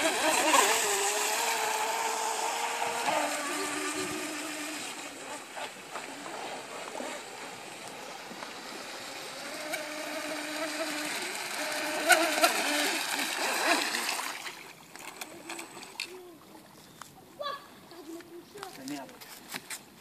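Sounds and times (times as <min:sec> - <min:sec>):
electric motor whining: 0:00.0 - 0:14.0.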